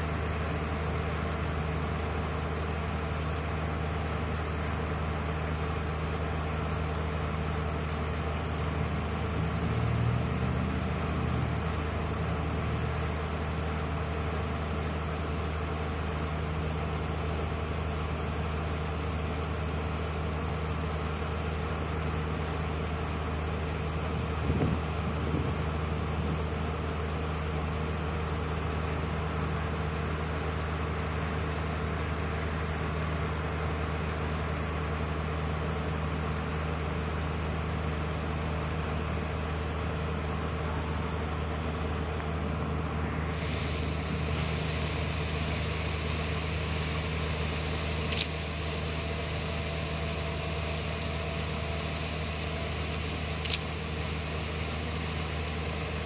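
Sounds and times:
engine and pump droning: 0.0 - 56.0
sharp clicks: 48.1 - 48.4, 53.4 - 53.7.

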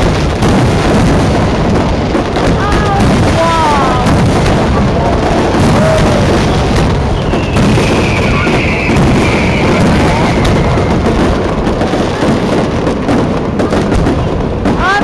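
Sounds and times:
fireworks crackling and popping: 0.0 - 15.0
high firework whistle: 5.6 - 12.3.

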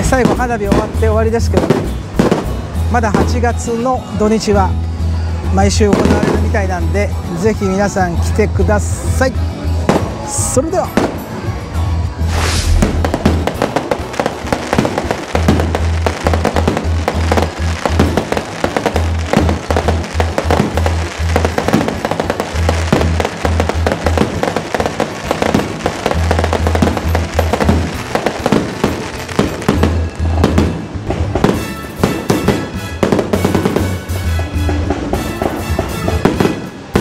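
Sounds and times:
fireworks bangs and crackles: 0.0 - 4.7, 5.4 - 37.0
music with pulsing bass: 11.5 - 31.5.

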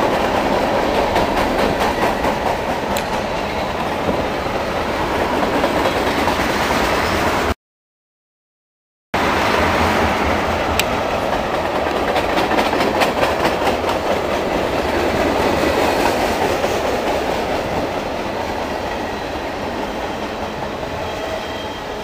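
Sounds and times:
wheels clacking over rail joints: 0.0 - 4.4, 10.7 - 20.4
train wheels rumbling on rail: 0.0 - 7.6, 9.2 - 22.0.

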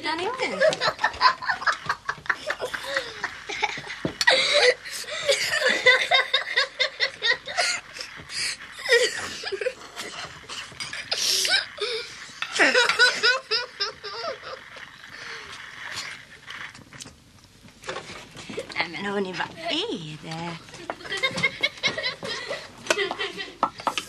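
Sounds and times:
boys giggling: 0.4 - 14.9, 20.7 - 23.8.

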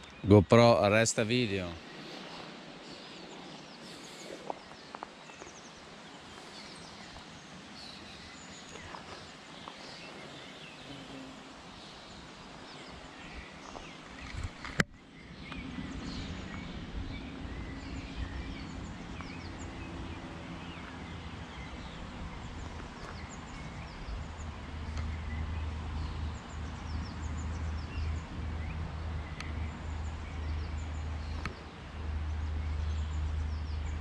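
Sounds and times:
steady background hiss: 0.0 - 24.5
small birds chirping: 0.0 - 34.0.

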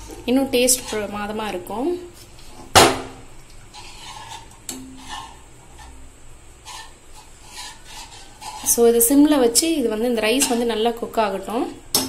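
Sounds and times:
ladle scraping a steel pan: 0.0 - 1.2, 3.7 - 6.0, 6.6 - 9.4.

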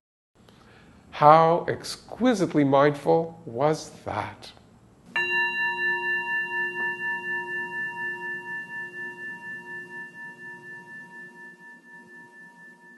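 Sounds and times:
singing bowl ringing: 5.1 - 12.9.

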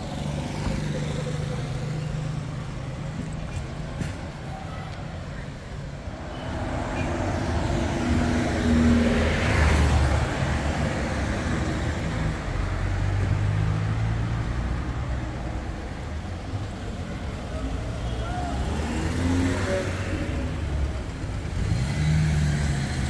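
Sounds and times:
car engines at low revs: 18.6 - 23.0.

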